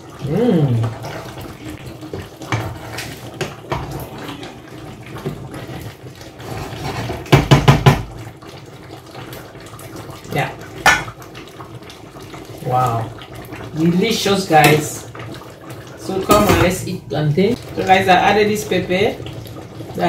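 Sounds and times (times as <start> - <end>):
loud knocks on pot: 7.3 - 8.1, 10.8 - 11.2.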